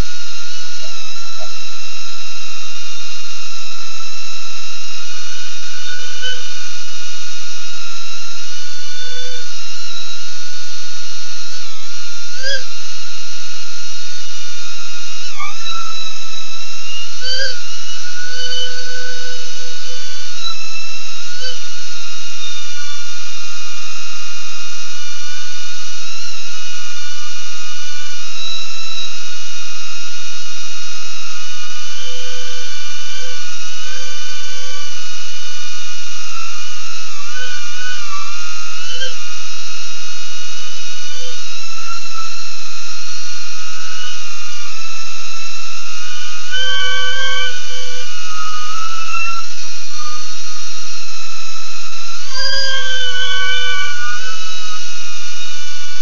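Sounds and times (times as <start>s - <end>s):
quadcopter motors whining: 46.0s - 50.8s, 52.2s - 55.0s.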